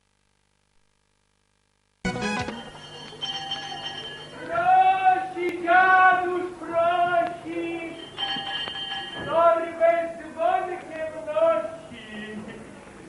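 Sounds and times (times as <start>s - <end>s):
small hand bell ringing: 2.6s - 5.1s, 7.8s - 9.6s
man singing drawn-out syllables: 4.6s - 8.0s.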